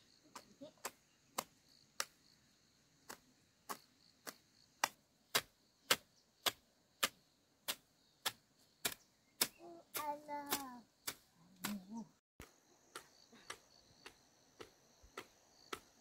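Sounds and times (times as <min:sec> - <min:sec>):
garden hoe chopping ground: 0:00.1 - 0:02.4, 0:03.0 - 0:16.0.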